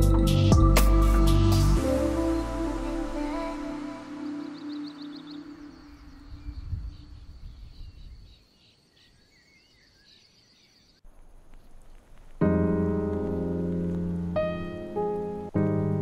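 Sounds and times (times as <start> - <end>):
piano music: 0.0 - 6.1, 12.4 - 16.0
faint bird chirps: 3.8 - 12.4.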